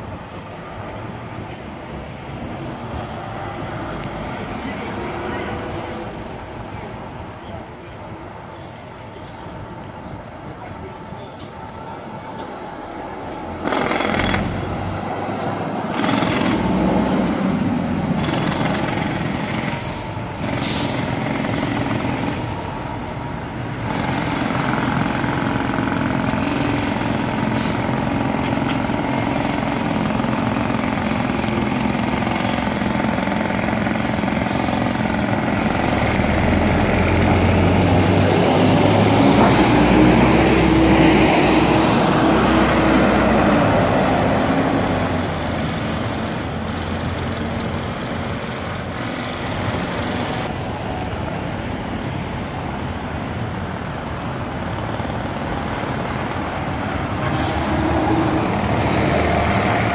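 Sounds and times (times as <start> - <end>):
high squeal: 18.8 - 22.4.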